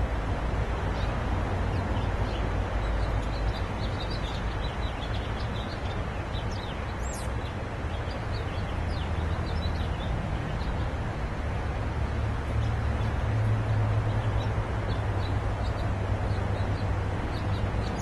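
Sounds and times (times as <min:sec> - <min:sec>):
small songbirds chirping: 0:00.8 - 0:11.1, 0:11.8 - 0:18.0.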